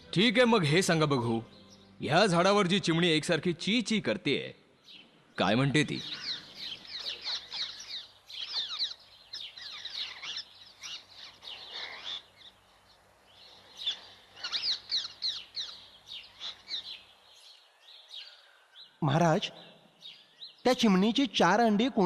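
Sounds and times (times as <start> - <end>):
sparrow chirping: 4.8 - 21.3.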